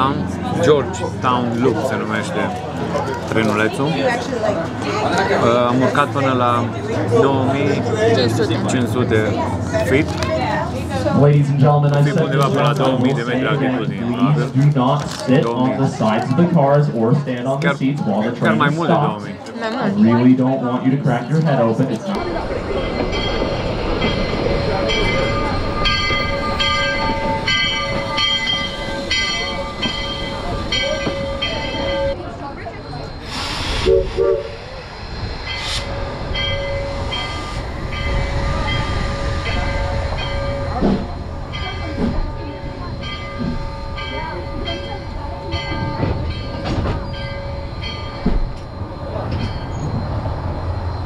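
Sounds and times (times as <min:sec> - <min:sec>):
low rumble of train: 0:00.0 - 0:51.0
locomotive bell ringing: 0:22.2 - 0:33.2, 0:35.2 - 0:50.1.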